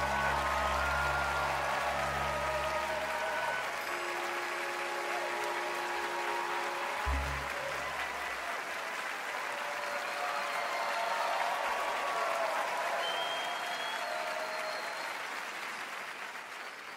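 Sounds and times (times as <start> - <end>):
orchestra final chord: 0.0 - 8.6
audience applauding: 0.0 - 16.9
short low note: 7.1 - 8.0.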